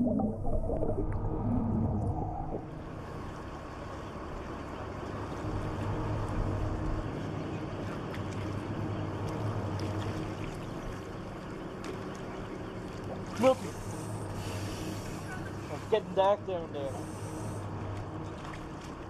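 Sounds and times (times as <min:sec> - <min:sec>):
noisy wash: 0:00.0 - 0:19.0
steady low hum: 0:00.0 - 0:19.0.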